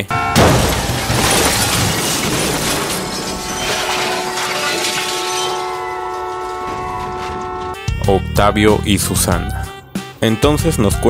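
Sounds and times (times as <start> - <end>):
metal debris scattering: 0.0 - 7.8
glass shattering: 0.2 - 7.1.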